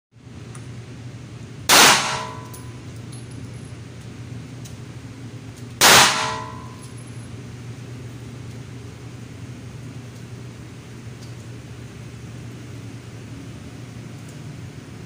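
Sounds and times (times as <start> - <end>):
steady low hum: 0.2 - 15.0
pistol shots with ringing tail: 1.7 - 2.8, 5.8 - 6.9.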